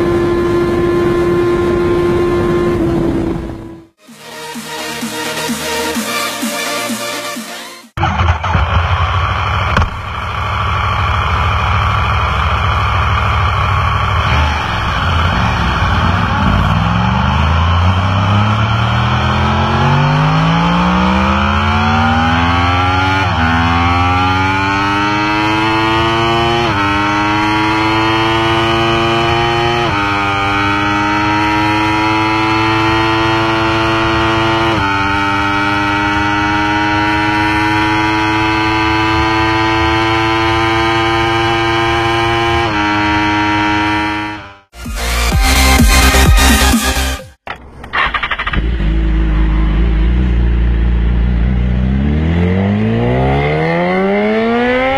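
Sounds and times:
motorcycle engine accelerating: 0:00.0 - 0:54.9
gear upshifts: 0:24.5 - 0:54.9.

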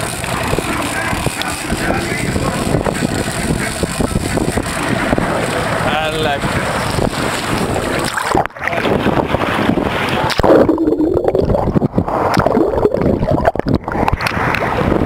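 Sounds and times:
wind buffeting microphone: 0:00.0 - 0:15.0
water sloshing against boat hull: 0:06.4 - 0:15.0.

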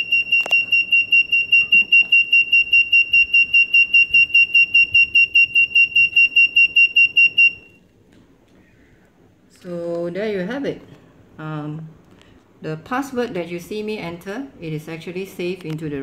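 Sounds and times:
rapid high-pitched alarm beeping: 0:00.0 - 0:07.8.

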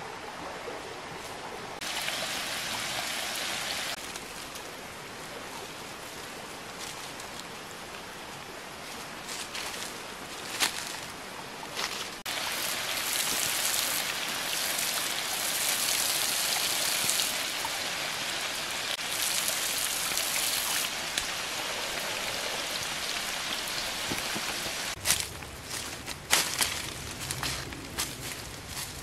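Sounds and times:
water jet pattering on leaves: 0:01.8 - 0:08.2, 0:08.8 - 0:29.0.

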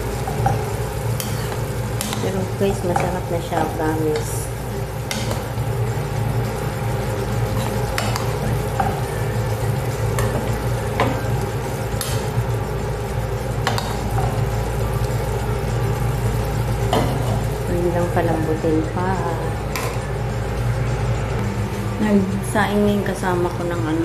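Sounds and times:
steady low hum: 0:00.0 - 0:24.0
vegetables sizzling in a frying pan: 0:00.0 - 0:24.0.

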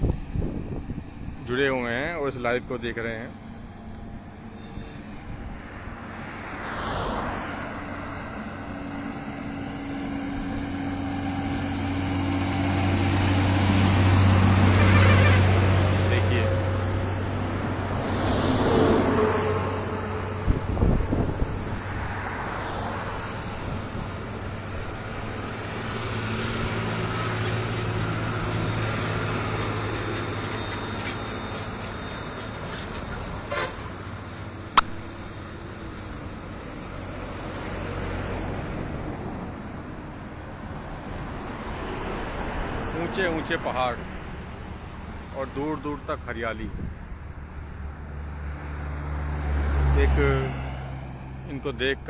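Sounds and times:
steady low traffic hum: 0:00.0 - 0:52.0
vehicles passing on highway: 0:00.0 - 0:52.0
sharp click: 0:34.8 - 0:35.1.

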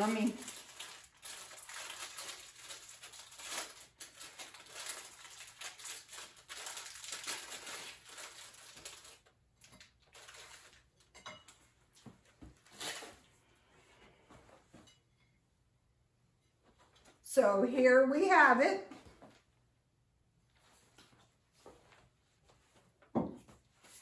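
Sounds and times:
wrapper crinkling: 0:00.0 - 0:11.1, 0:12.6 - 0:13.3.

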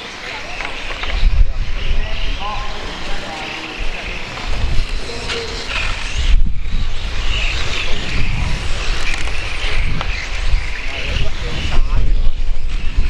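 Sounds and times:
electric toy cars whining: 0:02.7 - 0:11.2.

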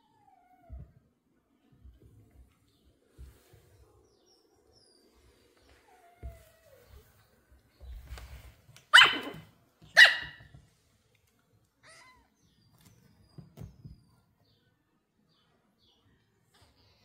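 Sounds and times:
puppy barking: 0:08.9 - 0:10.5.

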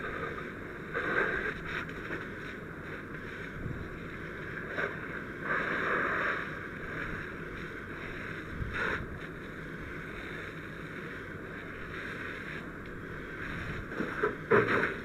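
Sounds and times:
fire hose water rushing: 0:00.0 - 0:15.0.

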